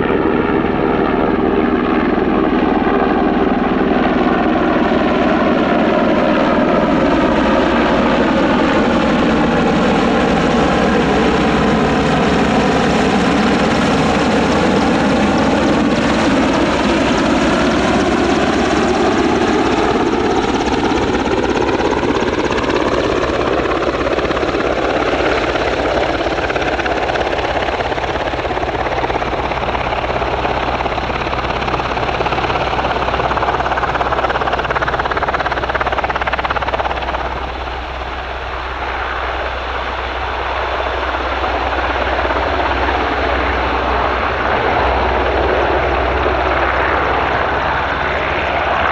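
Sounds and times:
helicopter rotors and engines: 0.0s - 48.9s.

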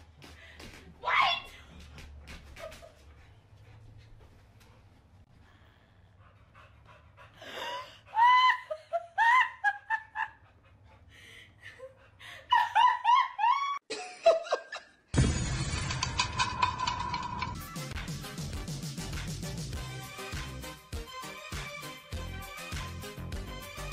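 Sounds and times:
person laughing hysterically: 7.8s - 10.4s, 11.8s - 15.0s.

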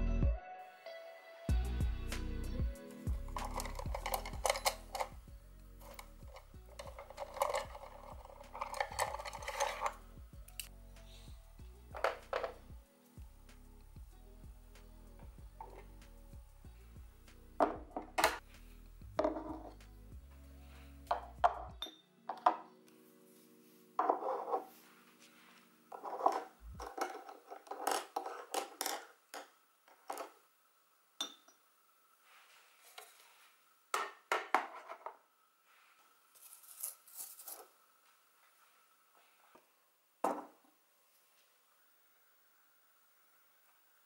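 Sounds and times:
objects knocking on tabletop: 11.9s - 12.6s, 17.6s - 18.4s, 19.2s - 19.8s, 21.1s - 22.6s, 24.0s - 24.7s, 40.2s - 40.6s.

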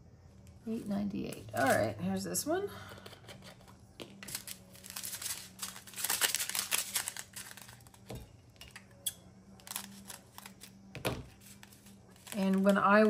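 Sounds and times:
plastic bag crinkling: 4.1s - 8.1s, 11.4s - 13.0s.

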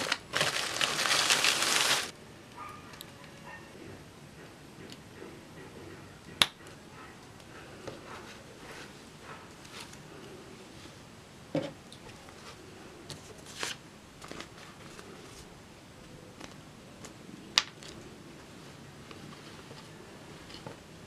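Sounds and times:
fabric and paper rustling: 0.0s - 2.1s, 12.1s - 15.5s, 17.8s - 20.9s.

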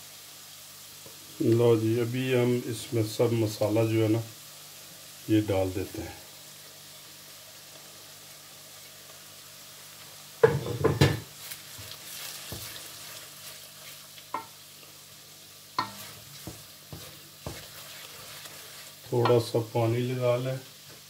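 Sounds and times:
oil sizzling in pan: 0.0s - 21.0s
spoon scraping and knocking pan: 10.4s - 14.6s, 15.8s - 19.5s.

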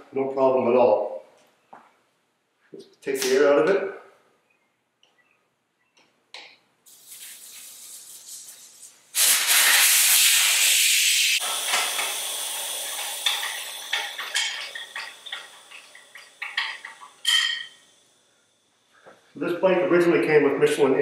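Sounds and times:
air hissing from tire valve: 6.9s - 18.4s.

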